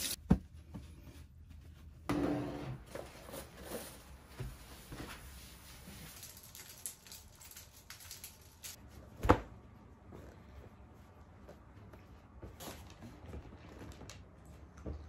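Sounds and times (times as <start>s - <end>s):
laundry rustling: 2.8s - 14.7s.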